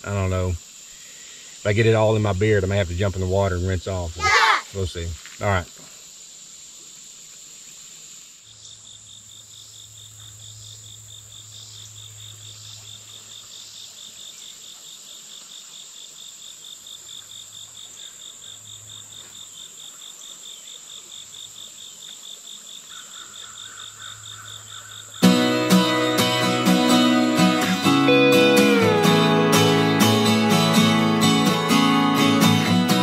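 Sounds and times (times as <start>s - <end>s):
rapid insect chirping: 0.0s - 33.0s
high-pitched insect drone: 23.4s - 33.0s.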